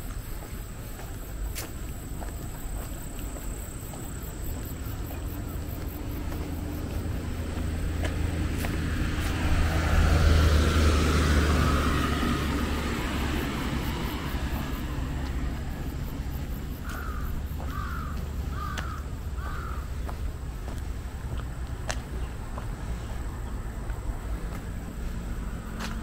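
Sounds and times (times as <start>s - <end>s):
vehicle passing: 0.0s - 26.0s
crow cawing: 16.8s - 20.2s.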